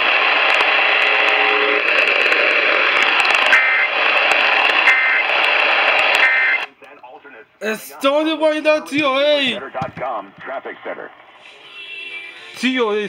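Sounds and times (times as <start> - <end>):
radio static hiss: 0.0 - 12.6
two-tone data bursts: 3.4 - 6.7.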